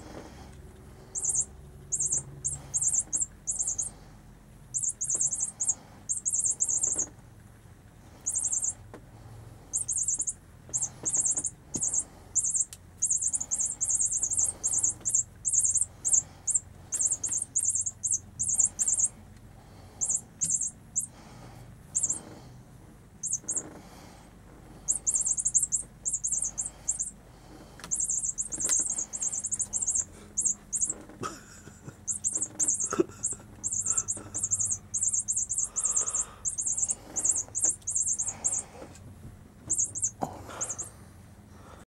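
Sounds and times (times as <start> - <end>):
faint steady hum: 0.0 - 41.9
short high-pitched chirps: 1.1 - 4.0, 4.7 - 7.1, 8.2 - 8.8, 9.7 - 19.2, 20.0 - 21.2, 21.9 - 22.2, 23.2 - 23.6, 24.9 - 27.2, 27.9 - 31.0, 32.0 - 38.7, 39.7 - 40.9.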